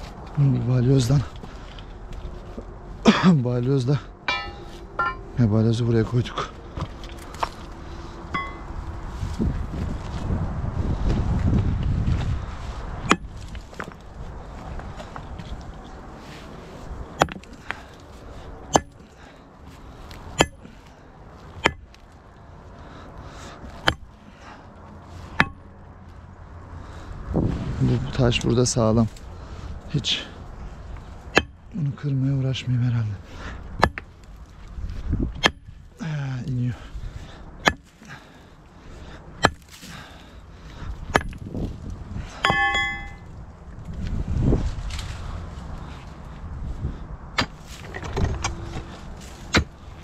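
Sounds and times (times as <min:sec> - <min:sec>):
sledgehammer striking stone: 0:04.3 - 0:05.2, 0:13.1 - 0:13.3, 0:17.2 - 0:17.4, 0:18.7 - 0:19.0, 0:20.4 - 0:20.6, 0:35.4 - 0:35.7, 0:37.6 - 0:37.9, 0:41.1 - 0:41.4, 0:42.4 - 0:43.3
metallic clang: 0:04.3 - 0:05.4, 0:08.3 - 0:08.8, 0:42.4 - 0:43.3.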